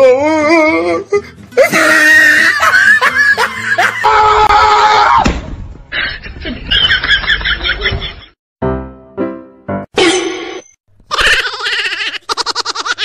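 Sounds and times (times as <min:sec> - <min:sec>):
person shrieking and laughing: 0:01.6 - 0:05.2, 0:11.1 - 0:13.0.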